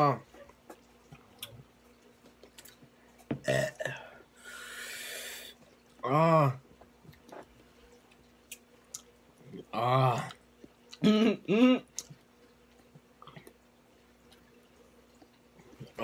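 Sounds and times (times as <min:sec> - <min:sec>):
loud voiced burp: 0:03.4 - 0:04.0, 0:06.0 - 0:06.6, 0:09.6 - 0:10.4
breathy hiss: 0:03.8 - 0:05.6.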